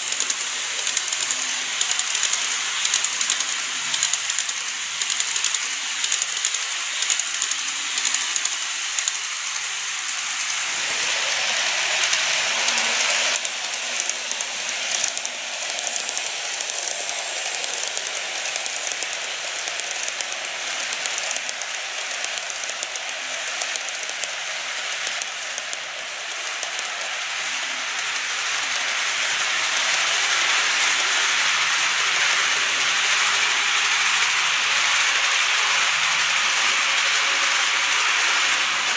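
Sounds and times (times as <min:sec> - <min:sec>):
model train wheels clattering on rails: 0:00.0 - 0:38.9.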